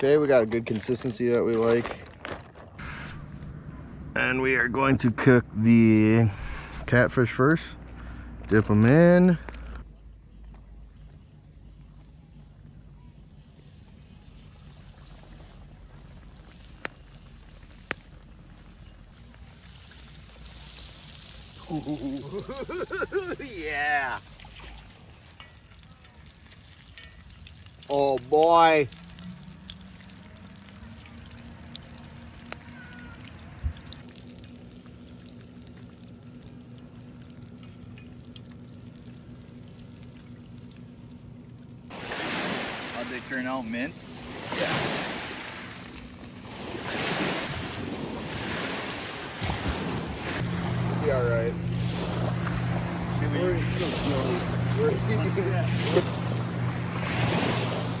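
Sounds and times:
oil popping: 0:13.4 - 0:42.1
fish frying in oil: 0:13.4 - 0:43.9.

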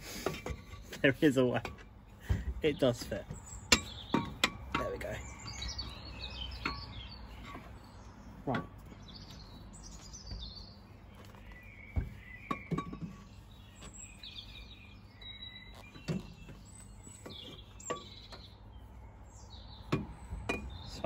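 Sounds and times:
faint birdsong: 0:00.0 - 0:21.0
light metallic knocks and clicks: 0:00.2 - 0:07.8.

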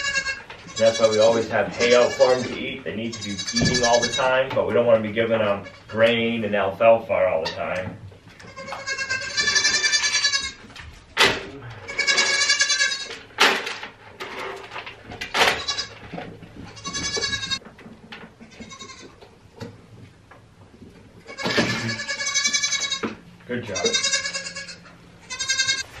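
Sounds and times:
goats bleating: 0:00.0 - 0:04.5, 0:05.4 - 0:06.1, 0:08.3 - 0:10.7, 0:11.6 - 0:13.3, 0:15.4 - 0:17.6, 0:18.4 - 0:19.2, 0:21.2 - 0:25.9.

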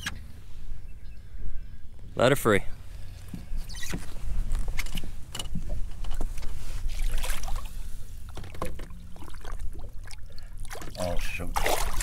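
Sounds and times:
water lapping against boat hull: 0:02.8 - 0:12.0.

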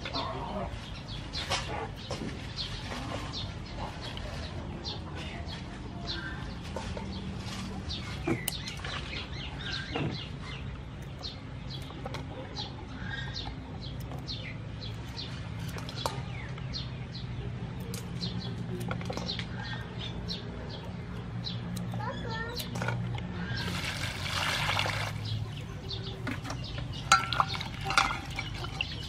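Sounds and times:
small birds chirping: 0:00.0 - 0:29.0
scissors snipping stems: 0:17.7 - 0:23.3.

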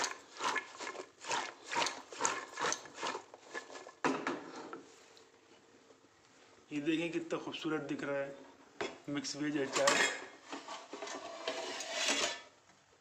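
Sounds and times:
vegetables sliding in metal pot: 0:00.0 - 0:05.0, 0:09.6 - 0:12.5.

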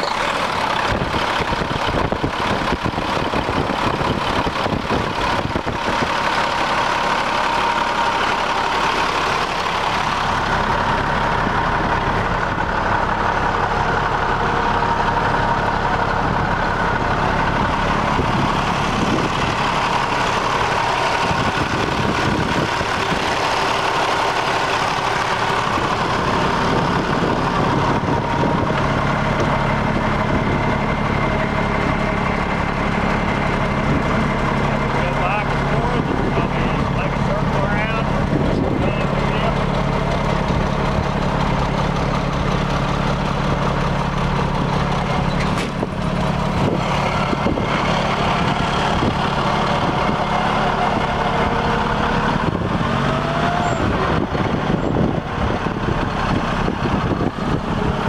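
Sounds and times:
diesel truck engine idling: 0:00.0 - 0:58.0.

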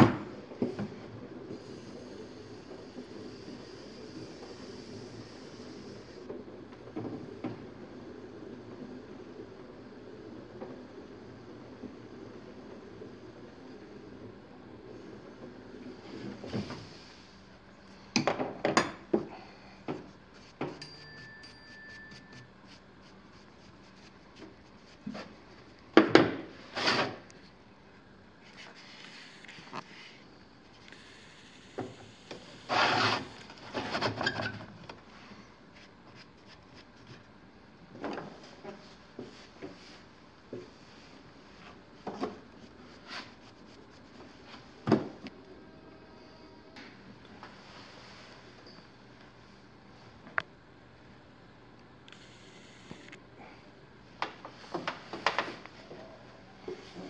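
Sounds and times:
brush rubbing on clay: 0:20.3 - 0:25.6, 0:42.6 - 0:44.5.

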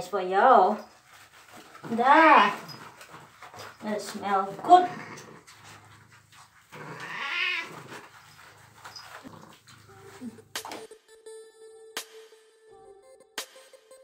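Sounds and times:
cat meowing: 0:06.8 - 0:08.1
background music: 0:10.5 - 0:14.0.

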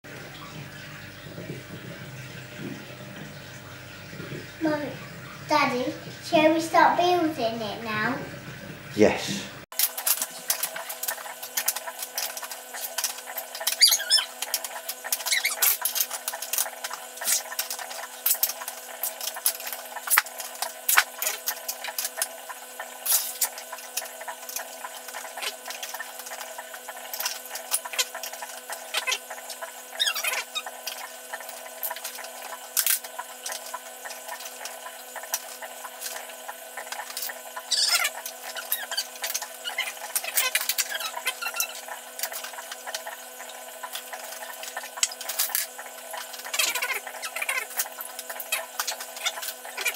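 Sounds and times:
short high squeaks: 0:13.6 - 0:16.1, 0:29.9 - 0:31.0, 0:37.7 - 0:41.9.

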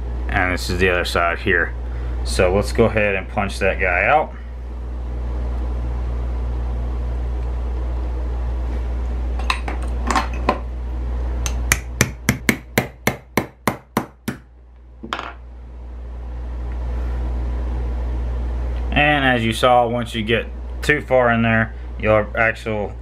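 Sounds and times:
hammer tapping metal punch: 0:11.4 - 0:14.4.

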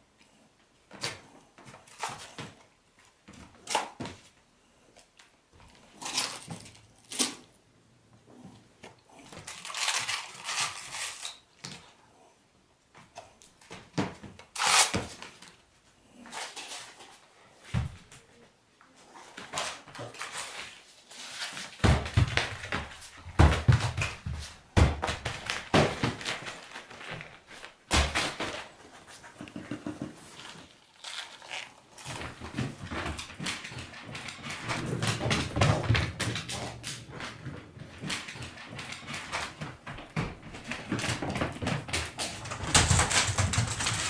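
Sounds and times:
paws and objects knocking on wooden floor: 0:21.8 - 0:27.3, 0:27.9 - 0:30.7, 0:32.0 - 0:44.0.

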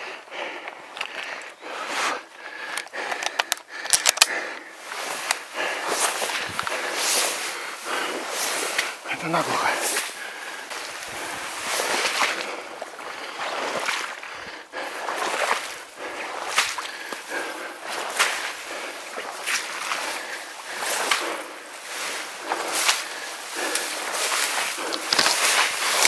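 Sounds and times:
reeds swishing against body: 0:04.8 - 0:12.4.

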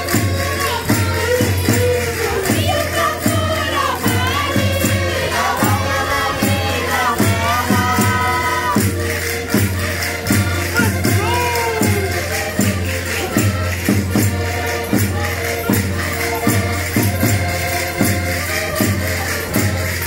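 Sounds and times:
group singing: 0:00.0 - 0:13.6
steady drum beat: 0:00.0 - 0:19.8
metallic jingling percussion: 0:00.0 - 0:20.0.

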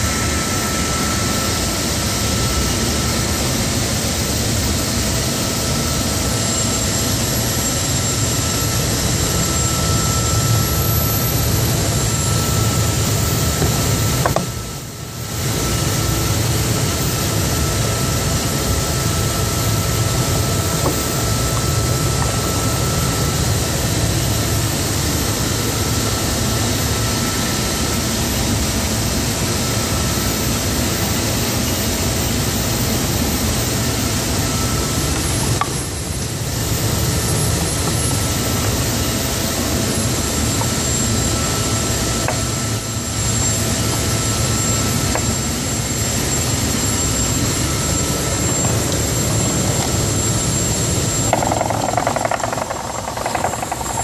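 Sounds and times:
faint high whine: 0:00.0 - 0:54.0
belt sander running: 0:47.4 - 0:54.0.

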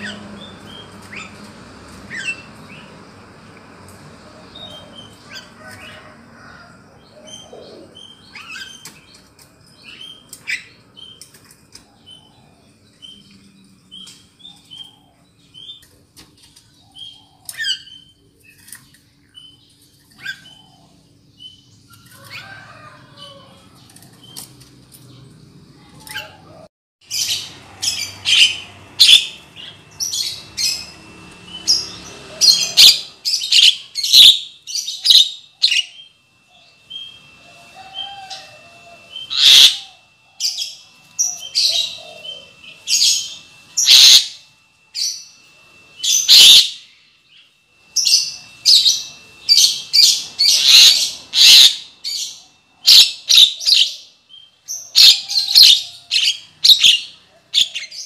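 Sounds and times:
bird harsh chirps and whistles: 0:27.1 - 0:36.1, 0:39.1 - 0:44.4, 0:46.0 - 0:47.0, 0:48.0 - 0:58.0.

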